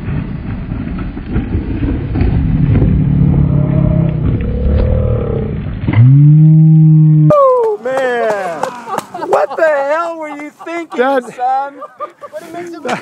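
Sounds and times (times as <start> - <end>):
tyre rumbling on loose dirt: 0.0 - 7.3.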